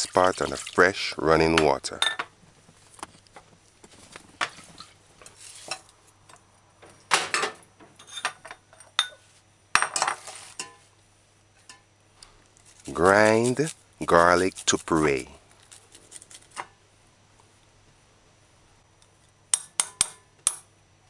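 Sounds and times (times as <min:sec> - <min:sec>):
kitchenware knocking and clinking: 0:01.6 - 0:02.3, 0:07.1 - 0:09.2, 0:09.8 - 0:10.8.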